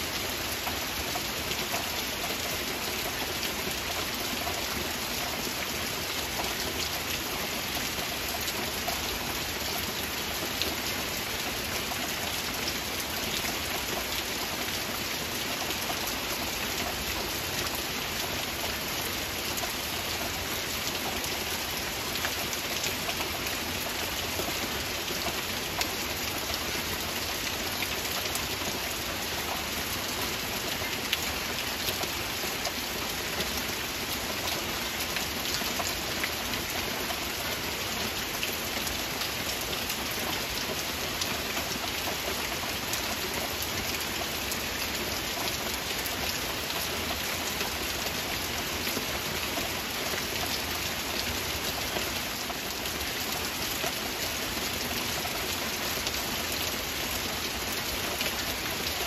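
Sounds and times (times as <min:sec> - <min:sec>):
heavy rain falling: 0:00.0 - 0:59.0.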